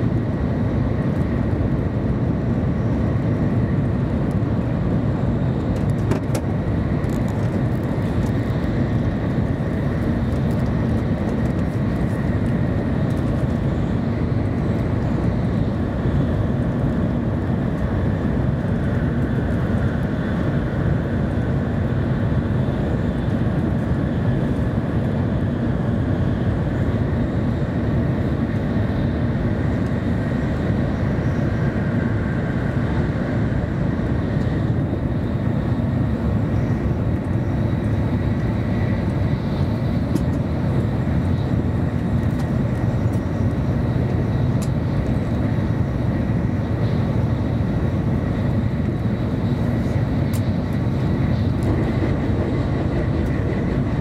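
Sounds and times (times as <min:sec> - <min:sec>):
train wheels rumbling on rail: 0:00.0 - 0:54.0
rushing air: 0:24.0 - 0:54.0.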